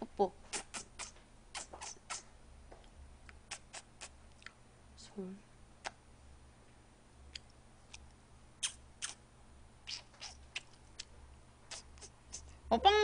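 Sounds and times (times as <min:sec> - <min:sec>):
person chewing food: 0:09.9 - 0:12.5.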